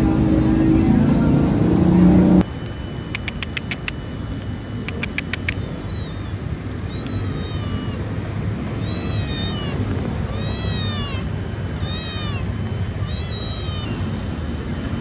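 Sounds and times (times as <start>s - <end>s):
cat meowing: 5.2s - 8.1s, 8.7s - 14.2s.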